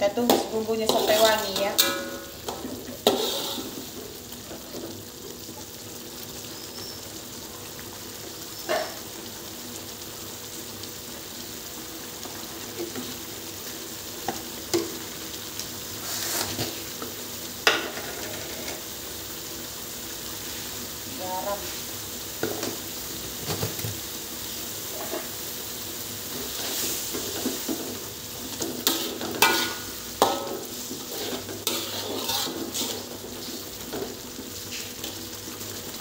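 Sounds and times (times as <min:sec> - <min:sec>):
paste sizzling in oil: 0:00.0 - 0:36.0
spatula stirring in wok: 0:00.2 - 0:04.6, 0:26.2 - 0:35.6.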